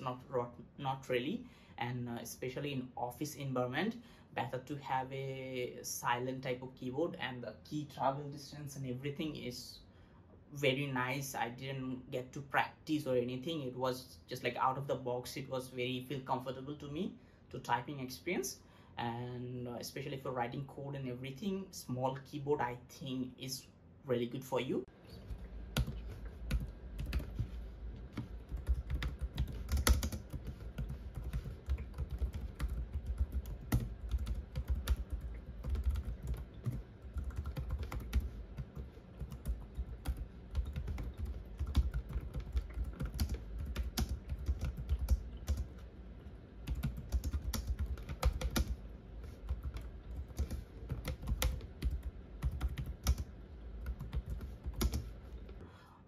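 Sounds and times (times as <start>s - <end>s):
keyboard typing clicks: 28.1s - 45.8s, 46.7s - 48.8s, 49.5s - 55.1s.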